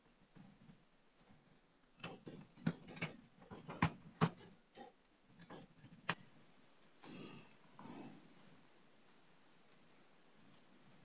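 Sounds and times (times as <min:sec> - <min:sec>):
sharp clicks and light taps: 0:02.0 - 0:06.2.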